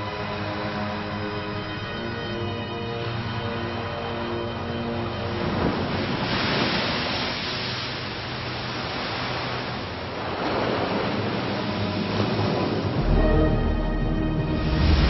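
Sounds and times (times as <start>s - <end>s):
seawater splashing: 5.0s - 13.1s.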